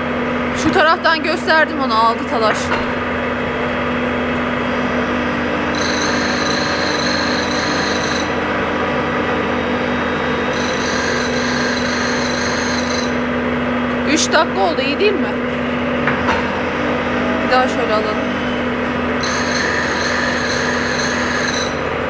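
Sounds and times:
grinding machine motor hum: 0:00.0 - 0:22.0
high-pitched grinding: 0:03.6 - 0:15.5, 0:16.4 - 0:22.0.

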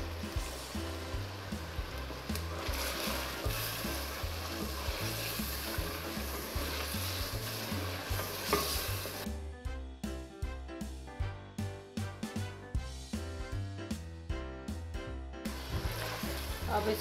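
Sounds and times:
meat sizzling in a pot: 0:00.0 - 0:09.3, 0:15.4 - 0:17.0
music with steady bass beat: 0:00.0 - 0:16.8
wooden spatula stirring: 0:01.7 - 0:09.3.

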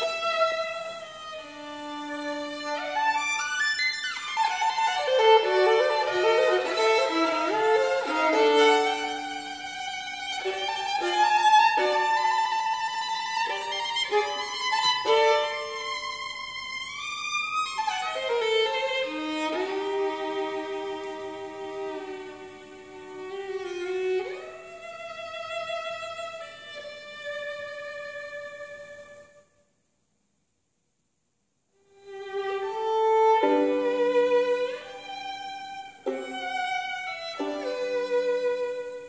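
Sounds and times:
solo violin bowed: 0:00.0 - 0:29.5, 0:31.8 - 0:39.0.

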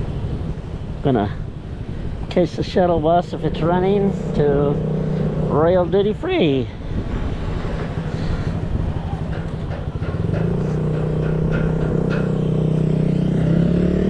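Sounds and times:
vehicle engine humming: 0:00.0 - 0:14.0.

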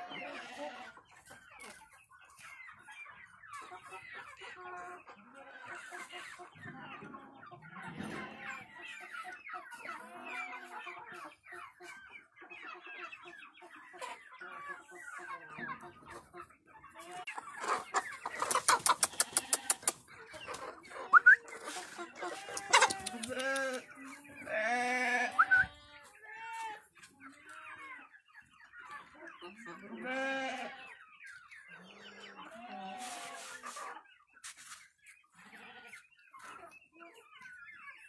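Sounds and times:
chickens clucking: 0:00.0 - 0:38.0.

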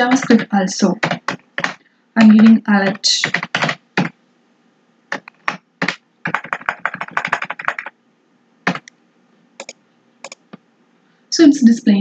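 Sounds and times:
computer keyboard typing: 0:00.0 - 0:04.2, 0:05.1 - 0:07.9, 0:08.6 - 0:08.9, 0:09.6 - 0:10.6.

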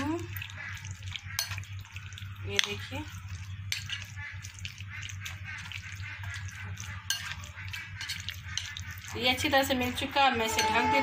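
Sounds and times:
wet mixing in a glass bowl: 0:00.0 - 0:11.0.

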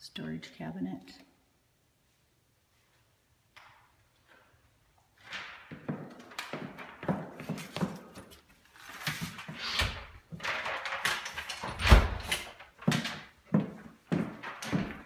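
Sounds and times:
footsteps on hard floor: 0:05.7 - 0:09.5, 0:12.8 - 0:15.0
door being handled: 0:09.8 - 0:13.3, 0:14.1 - 0:15.0.

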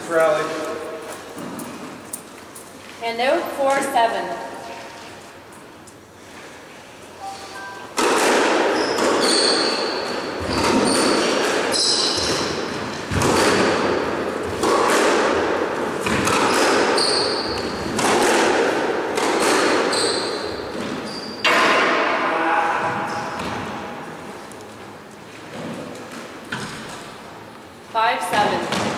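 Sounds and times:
squash ball hitting rackets and walls: 0:00.2 - 0:02.4, 0:07.9 - 0:24.4, 0:25.0 - 0:27.4, 0:28.2 - 0:28.9
shoes squeaking on wooden floor: 0:08.7 - 0:13.1, 0:16.1 - 0:18.0, 0:19.9 - 0:21.4.

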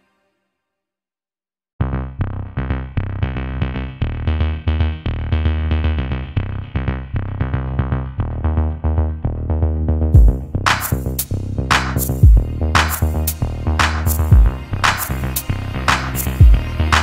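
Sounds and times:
electronic music with beat and bass: 0:08.0 - 0:17.0.

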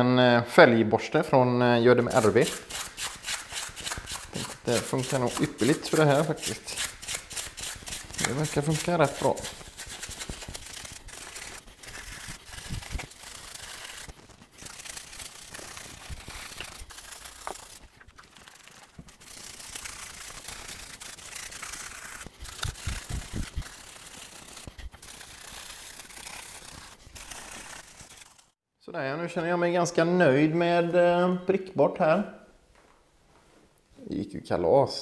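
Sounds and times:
brush scrubbing metal: 0:02.1 - 0:28.4.

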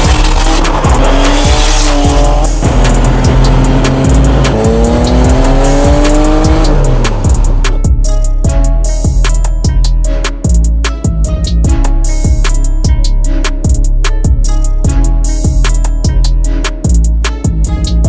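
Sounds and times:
turbo car engine accelerating hard: 0:00.0 - 0:07.7
music with a steady beat: 0:00.0 - 0:18.0.

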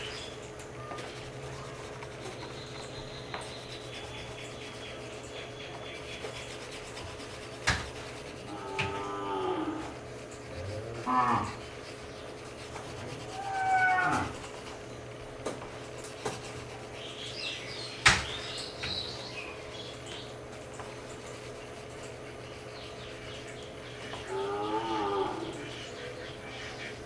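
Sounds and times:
drawn-out animal calls: 0:13.2 - 0:14.5.

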